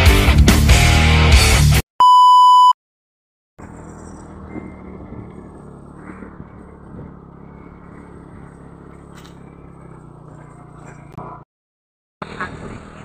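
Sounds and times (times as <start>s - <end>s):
small motorcycle engine running: 3.6s - 11.4s, 12.2s - 13.0s.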